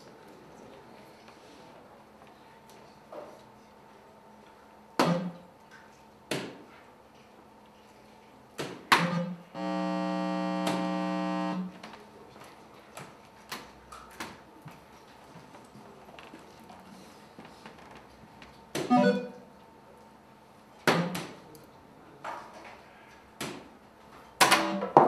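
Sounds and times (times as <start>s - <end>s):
darts hitting electronic board: 5.0s - 5.4s
electronic buzzer tone: 9.1s - 11.8s, 18.9s - 19.4s.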